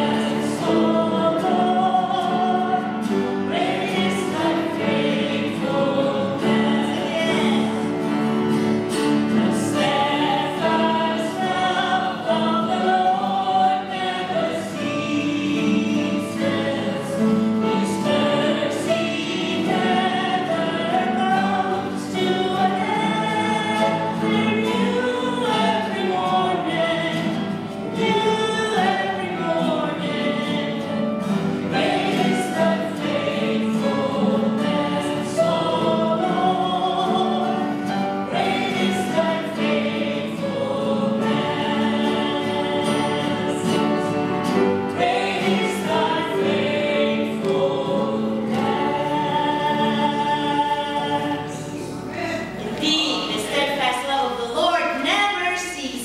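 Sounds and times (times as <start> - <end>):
acoustic guitar strumming: 0.0 - 55.3
voices singing a hymn: 0.0 - 55.3.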